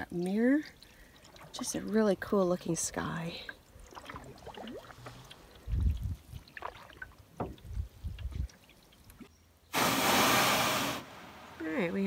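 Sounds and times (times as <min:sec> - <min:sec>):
water sloshing at hull: 0:00.0 - 0:09.3.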